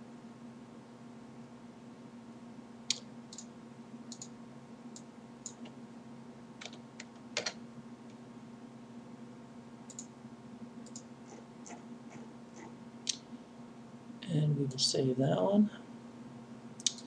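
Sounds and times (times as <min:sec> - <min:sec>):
low steady hum: 0:00.0 - 0:17.0
keyboard and mouse clicking: 0:04.1 - 0:04.3, 0:05.0 - 0:05.7, 0:06.6 - 0:07.6, 0:09.9 - 0:10.1, 0:10.8 - 0:11.8, 0:16.8 - 0:17.0.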